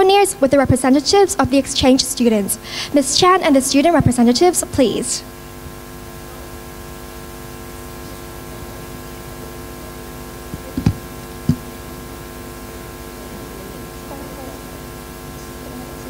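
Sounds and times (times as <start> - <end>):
electrical hum from public address: 0.0 - 16.0
dull thumps: 10.5 - 11.7.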